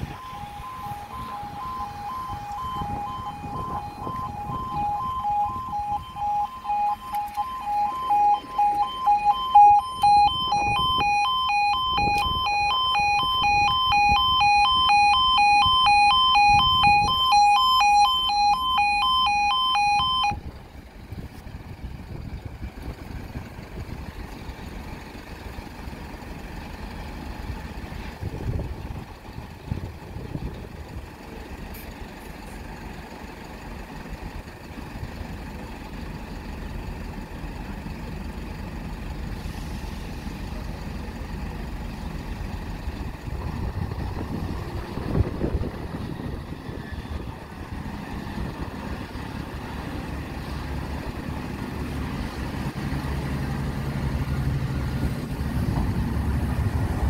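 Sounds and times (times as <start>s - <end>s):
high-pitched pulsing tones: 0.0s - 20.4s
pulsing two-tone alarm: 0.0s - 20.4s
outdoor background noise: 0.0s - 57.0s.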